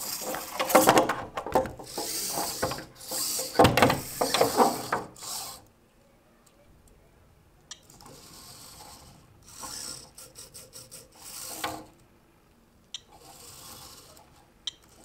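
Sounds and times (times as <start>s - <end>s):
robot servo motors whirring: 1.8s - 5.6s, 7.9s - 11.9s, 13.1s - 15.0s.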